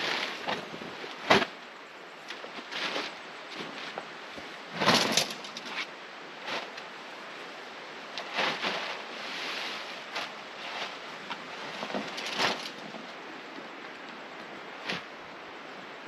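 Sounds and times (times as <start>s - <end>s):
canvas and plastic tarp rustling: 0.0s - 1.6s, 2.4s - 6.9s, 8.2s - 13.2s.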